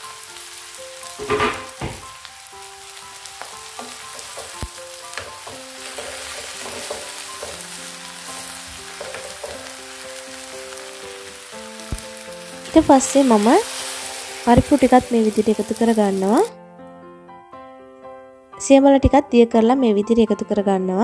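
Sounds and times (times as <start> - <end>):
vegetables sizzling in oil: 0.0 - 16.5
wooden spoon stirring: 3.7 - 11.0.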